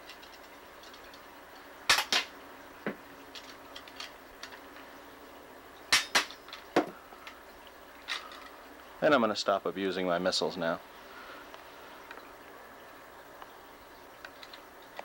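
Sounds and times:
toy missiles shooting with clacks: 1.9s - 2.3s, 5.9s - 6.4s.

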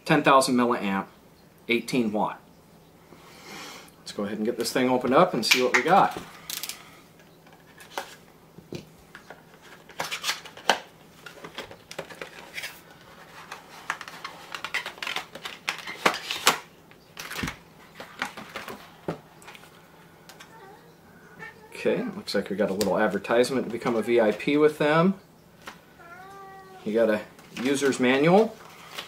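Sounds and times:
cardboard packaging rustling: 9.1s - 19.8s, 25.6s - 29.0s.

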